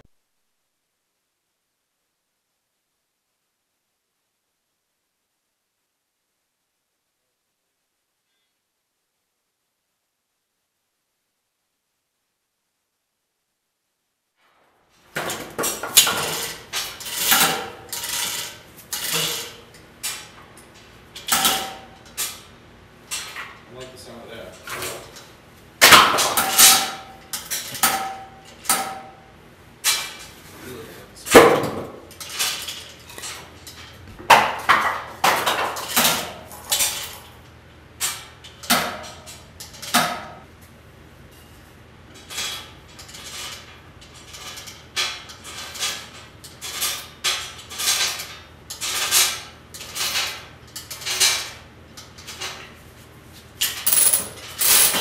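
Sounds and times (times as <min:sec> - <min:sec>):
metallic clanks and knocks: 0:15.1 - 0:22.4.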